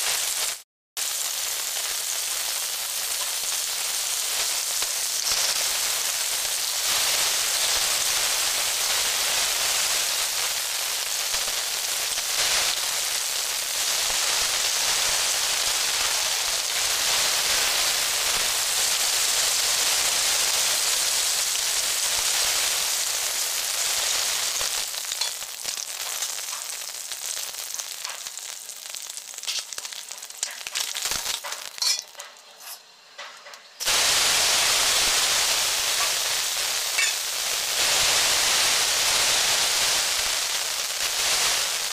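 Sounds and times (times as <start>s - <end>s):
fish frying in hot oil: 0.0s - 41.9s
onions sizzling in oil: 0.0s - 41.9s.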